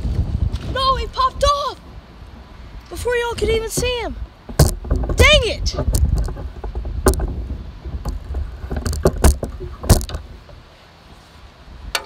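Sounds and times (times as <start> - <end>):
wind rumble on microphone: 0.0 - 12.0
clicks and knocks of handling: 3.6 - 10.6.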